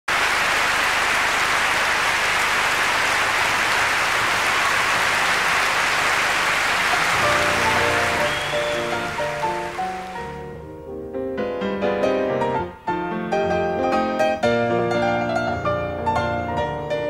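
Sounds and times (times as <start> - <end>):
audience applauding: 0.1 - 10.6
grand piano playing: 6.8 - 17.0.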